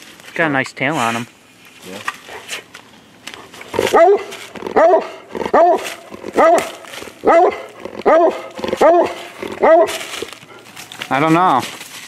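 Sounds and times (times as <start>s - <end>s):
dog barking loudly: 3.7s - 10.3s.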